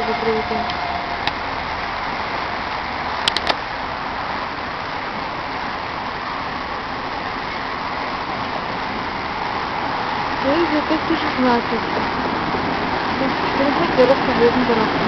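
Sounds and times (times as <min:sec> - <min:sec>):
distant train rushing: 0:00.0 - 0:15.0
short clicks: 0:03.3 - 0:03.6.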